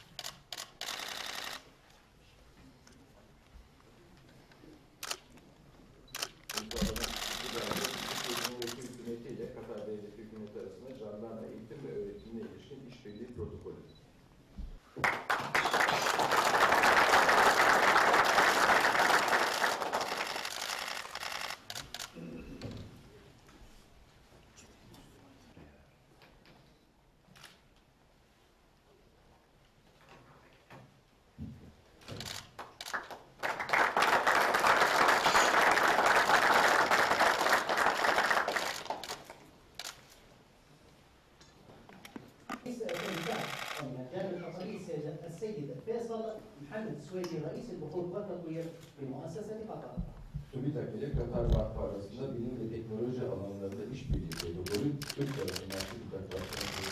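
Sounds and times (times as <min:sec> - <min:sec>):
camera shutter clicks: 0:00.0 - 0:01.7, 0:05.0 - 0:05.3, 0:06.1 - 0:08.8, 0:20.0 - 0:22.2, 0:32.2 - 0:33.0, 0:38.6 - 0:40.2, 0:42.9 - 0:43.9, 0:54.3 - 0:56.9
crowd applauding: 0:15.0 - 0:21.4, 0:32.6 - 0:39.4
people clapping: 0:15.0 - 0:21.4, 0:32.5 - 0:39.4.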